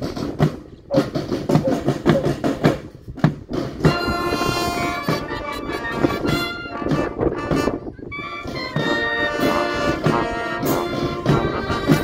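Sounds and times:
marching band drums beating: 0.0s - 12.0s
brass section holding notes: 3.9s - 12.0s.

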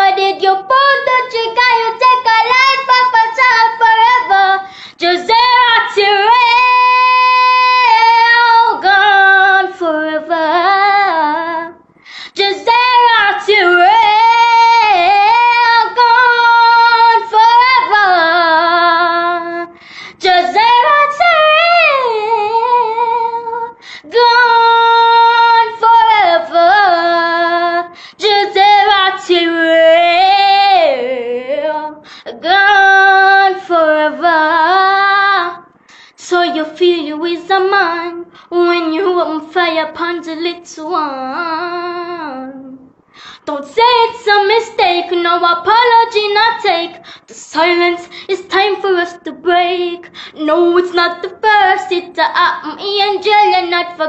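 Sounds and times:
girl singing: 0.0s - 54.0s
breaths: 4.6s - 5.0s, 11.9s - 12.4s, 19.7s - 20.2s, 23.8s - 24.1s, 27.9s - 28.2s, 32.0s - 32.3s, 35.7s - 36.2s, 38.3s - 38.5s, 43.0s - 43.5s, 47.0s - 47.3s, 48.0s - 48.3s, 50.1s - 50.4s.

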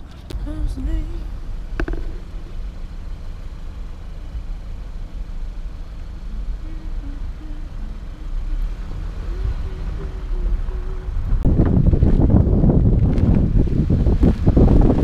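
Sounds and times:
car rumbling from inside cabin: 0.0s - 15.0s
sharp knock: 1.8s - 2.6s
wavering tone: 6.2s - 11.4s.

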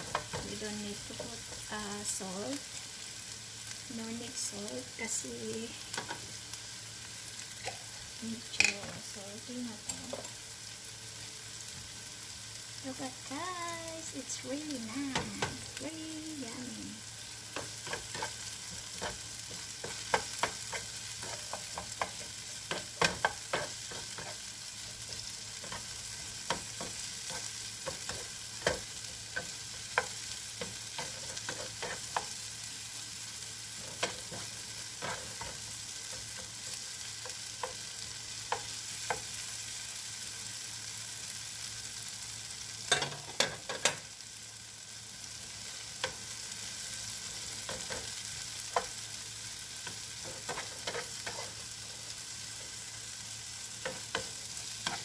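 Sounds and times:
food sizzling in a frying pan: 0.0s - 55.0s
spatula scraping a pan: 17.4s - 32.4s, 33.7s - 39.4s, 49.8s - 51.8s.

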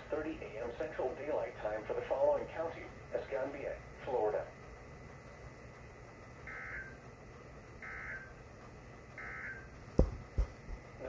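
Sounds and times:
sharp thumps: 9.9s - 11.0s.

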